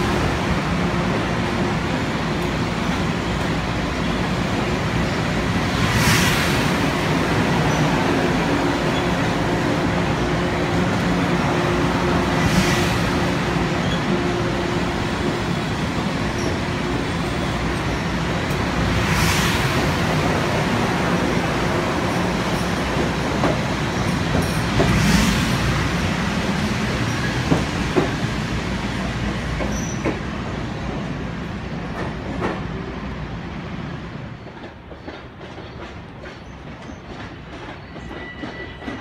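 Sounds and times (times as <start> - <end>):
train rumble: 0.0 - 39.0
train wheels clacking over rail joints: 22.4 - 25.1, 34.4 - 39.0.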